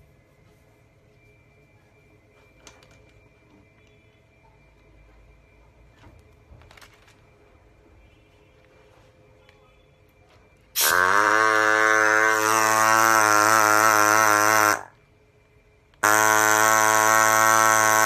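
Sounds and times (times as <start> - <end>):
handpiece buzzing: 10.8 - 14.9, 16.0 - 18.0.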